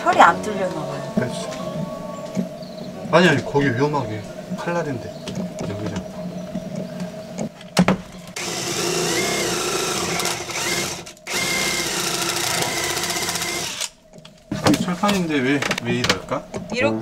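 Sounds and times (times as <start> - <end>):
power drill boring into sheet steel: 8.4 - 13.9.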